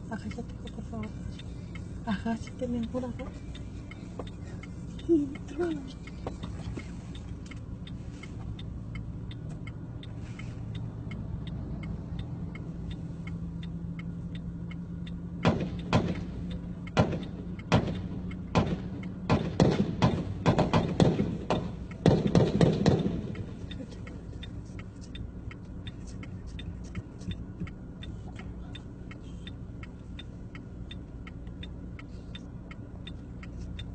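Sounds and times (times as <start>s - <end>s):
gunshots: 17.0s - 23.2s.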